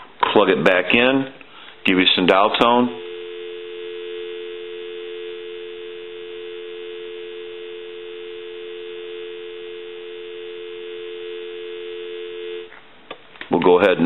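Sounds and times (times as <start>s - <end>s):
telephone dial tone: 3.0s - 12.7s.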